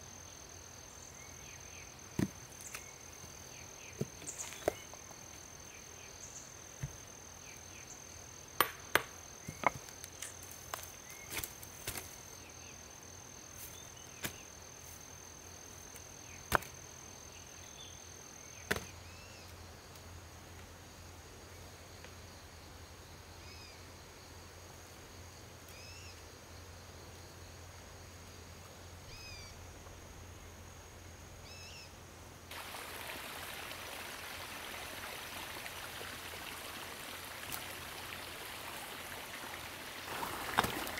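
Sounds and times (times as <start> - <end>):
rocks clacking together: 40.1 - 40.9.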